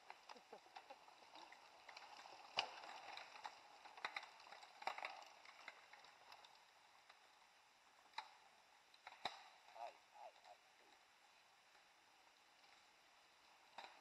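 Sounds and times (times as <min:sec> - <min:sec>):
bike clicks and rattles: 0:00.0 - 0:09.7, 0:11.7 - 0:14.0.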